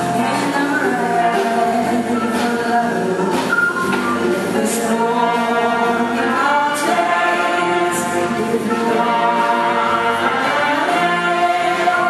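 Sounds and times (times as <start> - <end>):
live band playing: 0.0 - 12.0
woman singing: 0.0 - 12.0.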